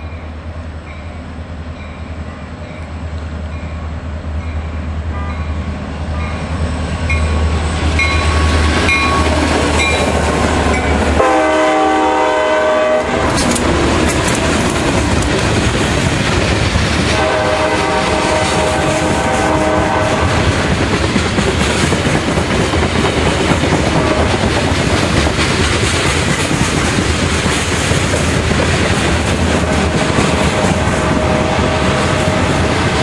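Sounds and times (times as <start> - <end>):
diesel locomotive engine rumble: 0.0 - 33.0
train horn blast: 5.1 - 5.6, 10.7 - 13.4, 17.1 - 20.7, 23.9 - 24.4, 29.6 - 32.8
train cars clattering over rail joints: 13.2 - 19.0, 20.5 - 30.9.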